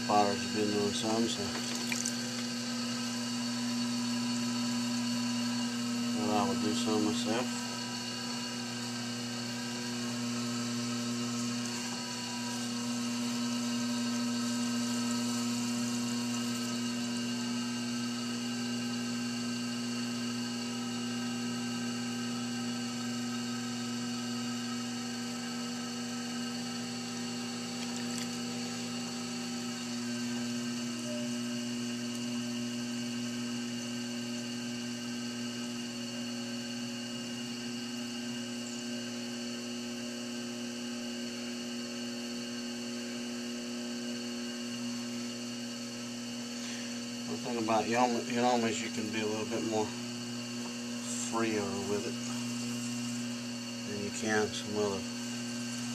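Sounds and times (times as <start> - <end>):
pottery wheel motor hum and whine: 0.0 - 55.9
wet clay being thrown: 1.5 - 2.2.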